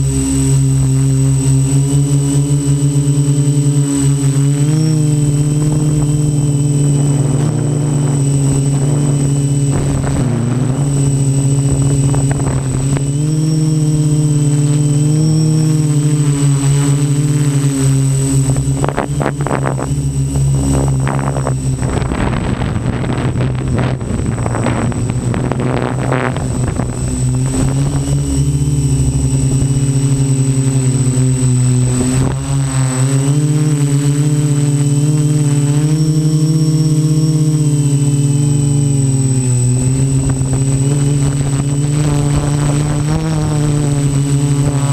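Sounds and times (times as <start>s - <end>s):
drone propellers humming: 0.0s - 44.9s
thin high whine: 0.0s - 44.9s
rough crackling noise: 5.3s - 13.3s, 17.7s - 33.0s.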